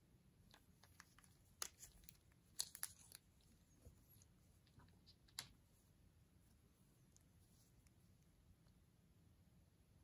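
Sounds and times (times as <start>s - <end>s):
plastic crinkling: 0.8s - 5.5s.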